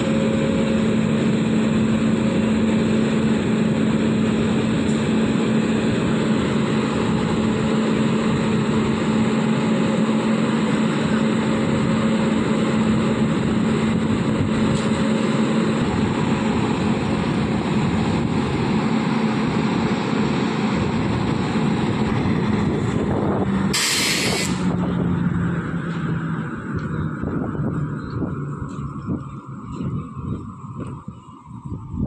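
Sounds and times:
locomotive cooling blowers: 0.0s - 32.0s
compressed air burst hissing: 23.7s - 24.7s.

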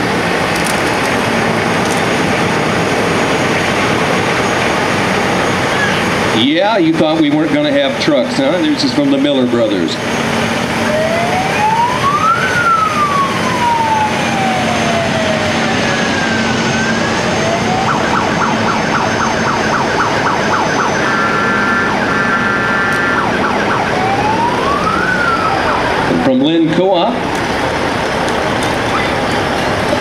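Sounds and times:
vehicle siren wailing: 0.0s - 30.0s
siren rapid pulsing tone: 10.0s - 28.0s.

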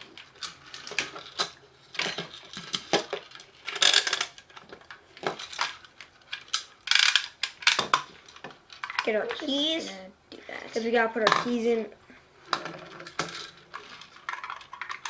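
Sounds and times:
clatter on hard tabletop: 12.5s - 15.0s.

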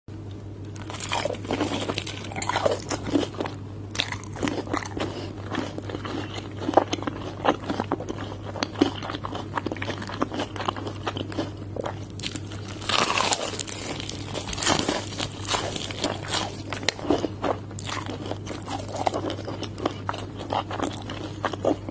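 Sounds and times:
chewing: 0.7s - 21.9s
crunching fried chicken: 0.7s - 21.9s.

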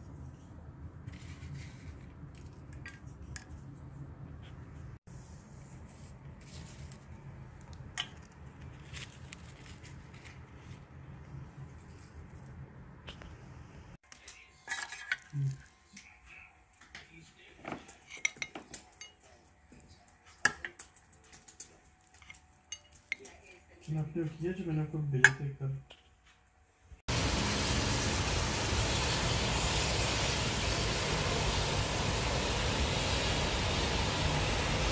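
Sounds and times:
handling noises and rustles: 0.0s - 13.4s, 14.0s - 24.1s
low steady hum: 27.1s - 34.9s
wind and rain rushing: 27.1s - 34.9s.

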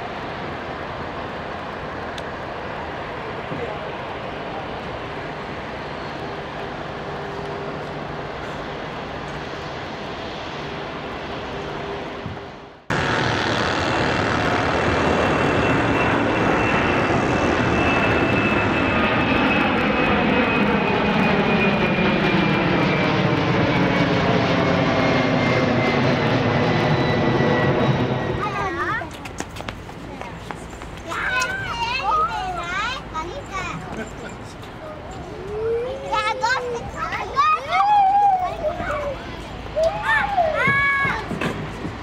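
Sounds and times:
jet engines humming at low thrust: 0.0s - 42.0s
jet engines roaring at takeoff: 0.0s - 42.0s.

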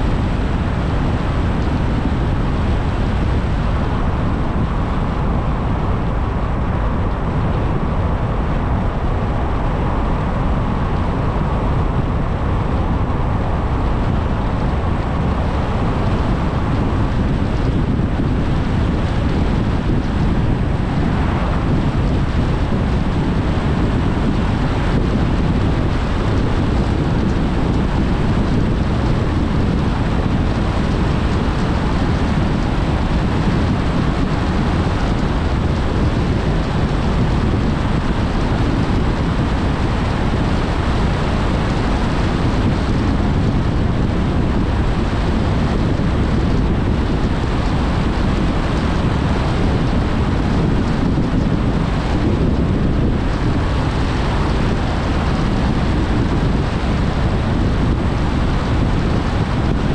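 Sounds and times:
car road and wind noise: 0.0s - 59.9s.

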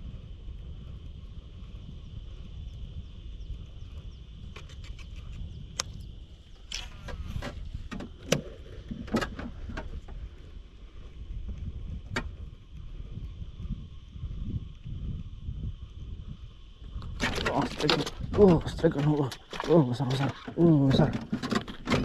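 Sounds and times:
wind rumble on microphone: 0.0s - 22.0s
sharp knocks and clicks: 17.0s - 22.0s.

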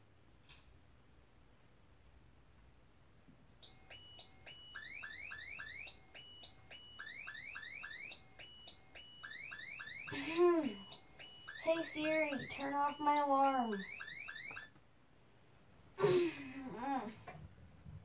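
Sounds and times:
phone alarm beeping: 3.6s - 14.7s.

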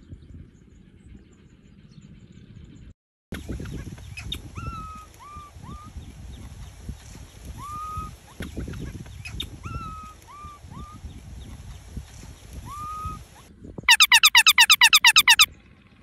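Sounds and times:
baby monkey cooing: 13.9s - 15.5s.

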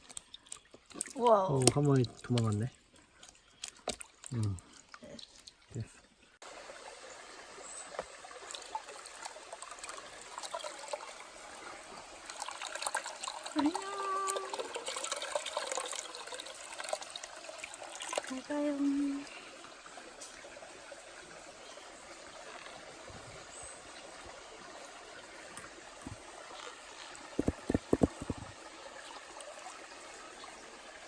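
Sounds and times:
stream water splashing and trickling: 0.0s - 31.0s.

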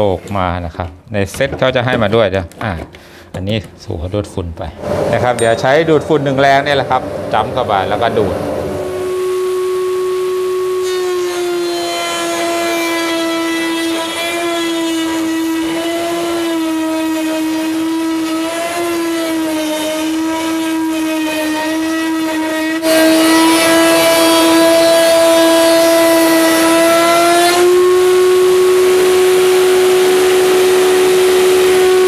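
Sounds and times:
dust collector drawing air: 4.8s - 11.2s
router whining while cutting wood: 8.3s - 32.0s.

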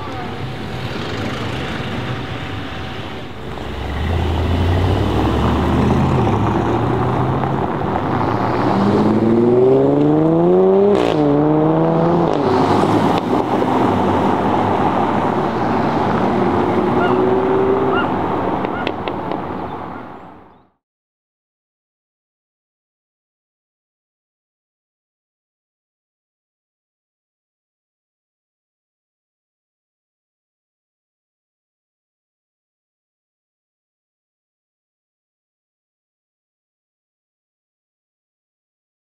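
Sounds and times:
sports car engine accelerating: 3.4s - 19.0s
engine revving with gear change: 3.5s - 13.7s.

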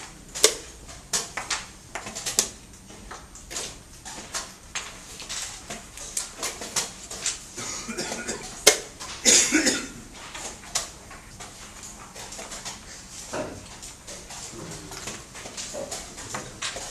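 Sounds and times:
chess pieces clicking on boards: 10.1s - 16.9s.

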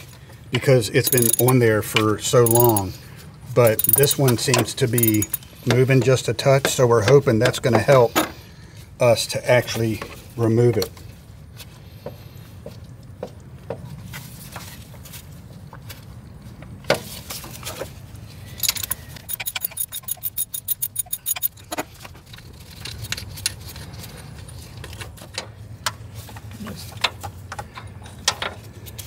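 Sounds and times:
rapid rattling clicks: 1.0s - 1.6s, 2.4s - 2.9s, 3.7s - 4.2s, 5.0s - 5.5s, 18.6s - 21.6s
metal clinks and rattles: 1.0s - 3.0s, 3.6s - 5.7s, 18.5s - 23.8s.

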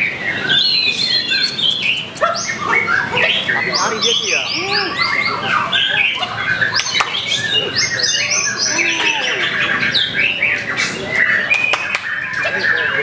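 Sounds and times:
chorus of caged songbirds: 0.0s - 13.0s
songbird singing whistles and chatter: 0.0s - 13.0s.

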